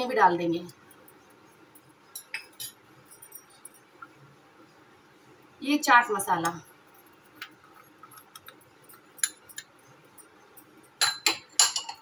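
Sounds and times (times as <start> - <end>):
spoon clinking on ceramic bowls: 2.1 - 3.9, 7.4 - 12.0.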